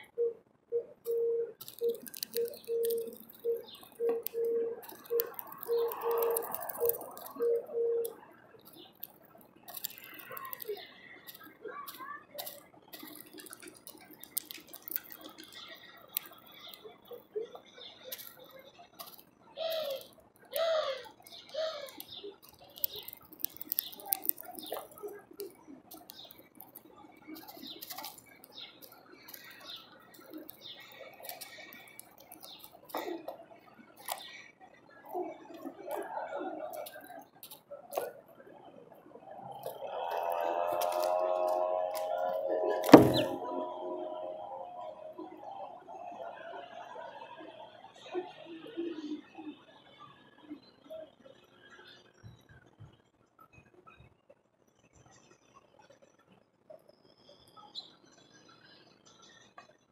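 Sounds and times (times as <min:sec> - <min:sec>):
beak tapping on feeder: 0:01.0 - 0:08.1
low pulsing tone: 0:40.4 - 0:45.7.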